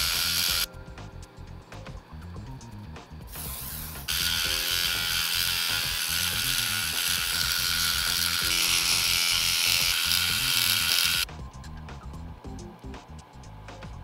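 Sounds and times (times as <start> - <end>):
background music: 0.0 - 14.0.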